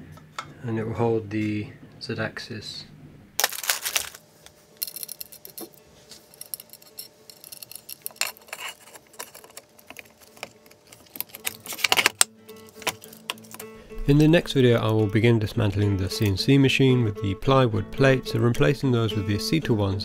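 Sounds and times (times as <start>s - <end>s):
metal screws clinking: 4.8s - 13.6s.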